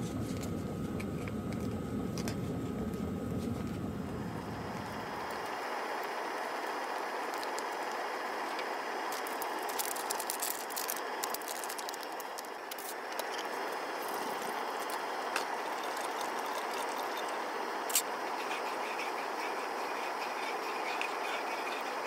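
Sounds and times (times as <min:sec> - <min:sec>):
gas stove hissing: 0:00.0 - 0:22.0.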